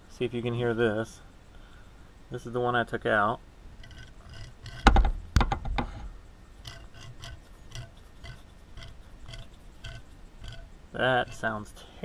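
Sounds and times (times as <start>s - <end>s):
ball screw gritty rasping with clicks: 3.8s - 5.1s, 6.6s - 11.9s
loud knocks: 4.8s - 6.0s.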